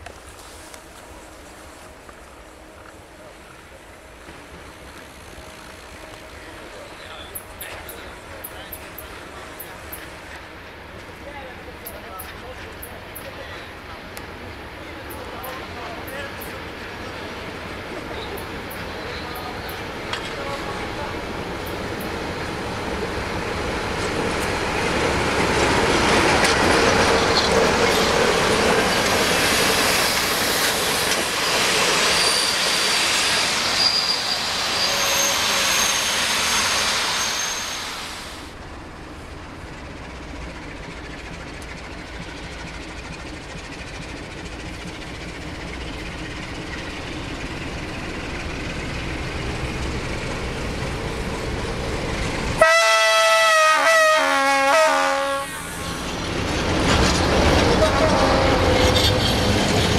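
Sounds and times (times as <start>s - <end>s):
diesel locomotive and train noise: 0.0s - 59.9s
low locomotive rumble: 38.2s - 59.9s
locomotive horn chord: 52.6s - 55.6s.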